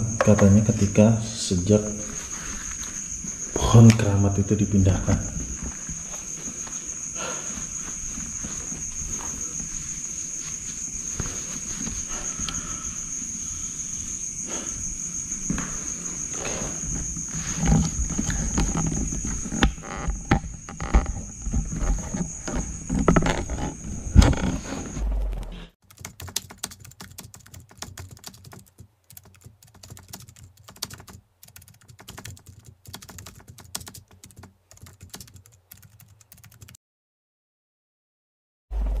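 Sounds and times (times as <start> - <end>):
insects trilling: 0.0 - 36.6
footsteps: 5.1 - 12.2.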